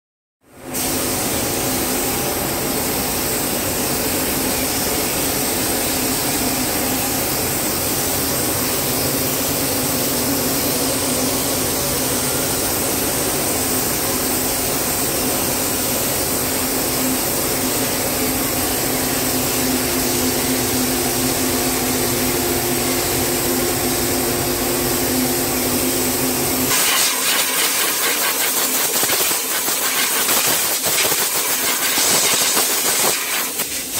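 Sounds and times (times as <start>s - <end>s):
air blow gun hissing: 0.7s - 2.0s, 26.7s - 33.9s
spray gun hissing: 0.8s - 2.0s, 25.5s - 33.9s
extraction fan hum: 1.0s - 29.9s.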